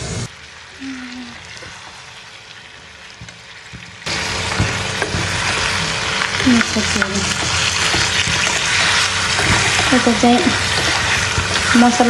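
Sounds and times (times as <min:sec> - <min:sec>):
meat frying in oil: 0:00.1 - 0:12.0
metal spoon stirring and knocking: 0:04.6 - 0:12.0.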